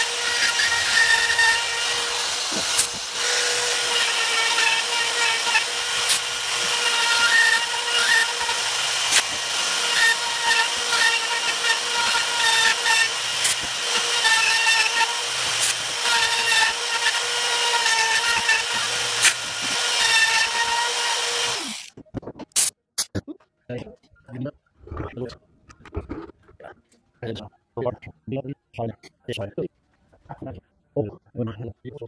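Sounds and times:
saw bit ticks: 0.0s - 21.9s.

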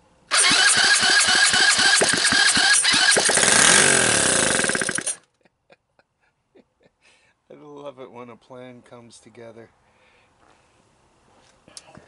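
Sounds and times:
small engine revving: 0.3s - 5.2s.

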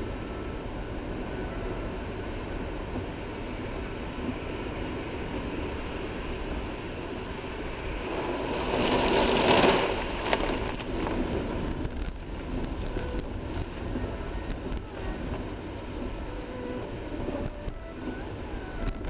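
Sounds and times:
tyre and road rumble: 7.6s - 19.0s
slush spraying over windshield: 8.0s - 11.6s
click: 18.8s - 19.0s.

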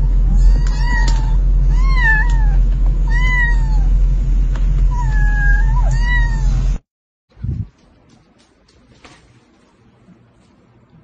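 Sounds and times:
steady low hum: 0.0s - 11.0s
kittens meowing: 0.3s - 3.9s, 4.9s - 6.6s.

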